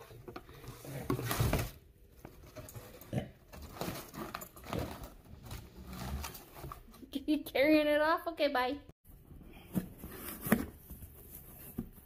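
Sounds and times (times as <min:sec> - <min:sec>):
paper and cardboard rustling: 0:00.0 - 0:07.1, 0:09.6 - 0:12.0.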